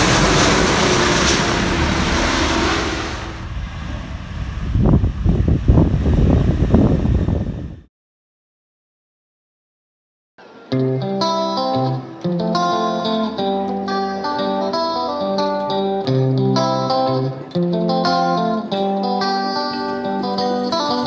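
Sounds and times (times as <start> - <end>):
sustained bass notes: 3.2 - 7.9
plucked guitar melody: 10.4 - 21.0.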